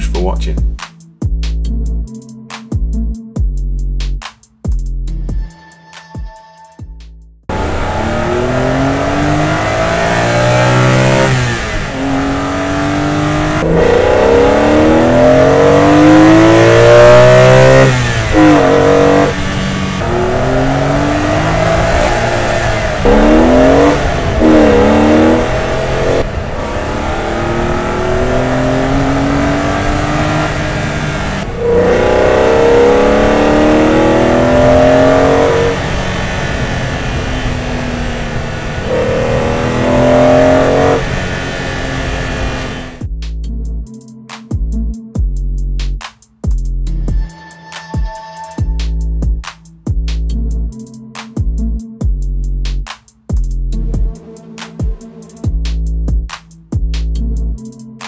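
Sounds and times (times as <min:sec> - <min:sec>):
car engine accelerating hard: 0:07.5 - 0:43.0.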